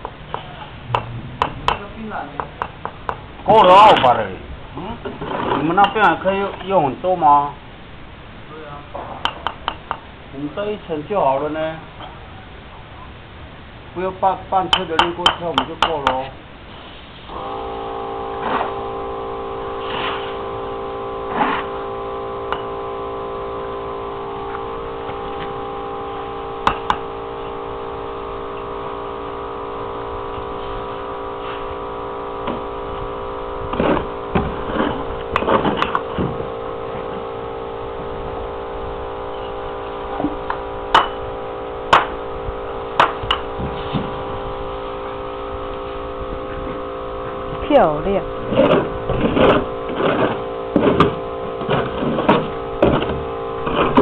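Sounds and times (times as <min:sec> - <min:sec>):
mechanical hum: 0:00.0 - 0:54.0
trowels tapping bricks: 0:05.1 - 0:06.1, 0:14.7 - 0:16.3.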